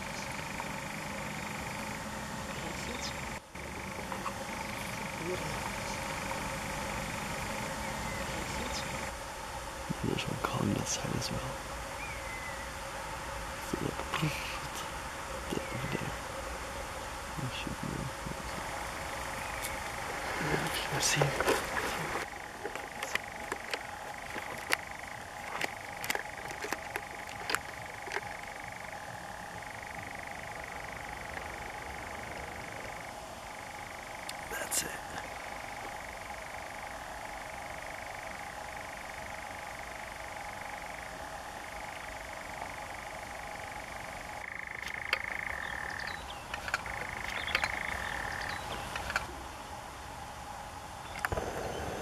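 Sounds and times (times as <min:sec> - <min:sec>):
nightjar churring trill: 0:00.0 - 0:49.5
sharp clicks: 0:21.1 - 0:28.4.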